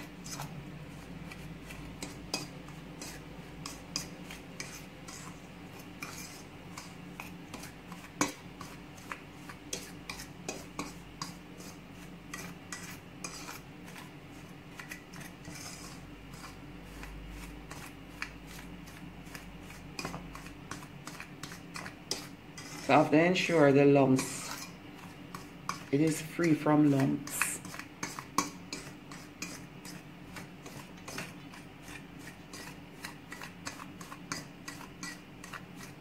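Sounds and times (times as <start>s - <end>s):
fork scraping a metal bowl: 0.0s - 36.0s.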